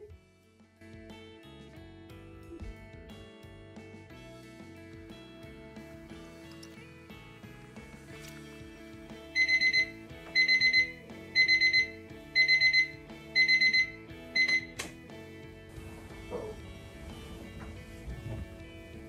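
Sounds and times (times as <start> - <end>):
background music: 0.0 - 19.0
alarm clock beeping: 9.2 - 14.8
alarm switch click: 9.4 - 15.0.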